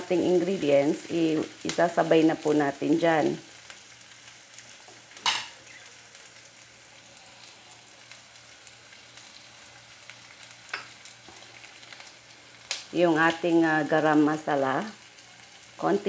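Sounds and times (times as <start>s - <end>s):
vegetables sizzling in oil: 0.0s - 16.0s.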